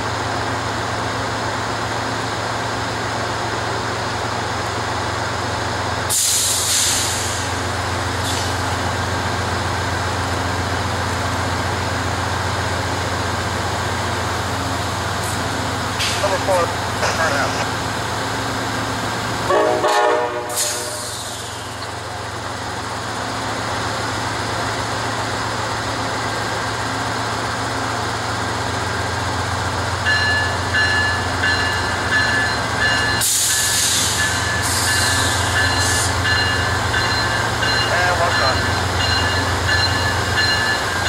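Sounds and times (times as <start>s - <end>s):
diesel locomotive engine drone: 0.0s - 41.0s
locomotive bell ringing: 30.0s - 41.0s.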